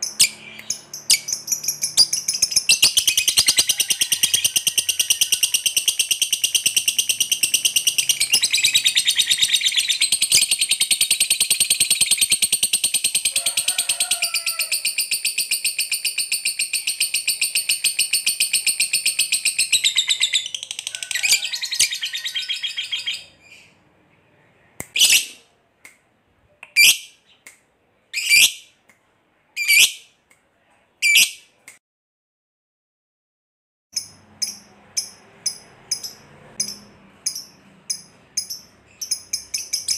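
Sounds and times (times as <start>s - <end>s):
bird sharp chirps: 0.0s - 13.3s, 34.0s - 39.9s
bird chattering trill: 0.0s - 13.4s, 34.0s - 39.9s.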